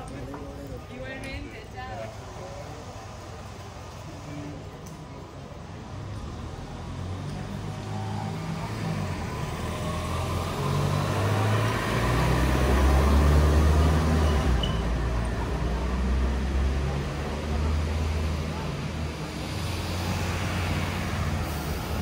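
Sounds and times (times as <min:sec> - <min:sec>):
vehicle driving past: 0:06.2 - 0:22.0.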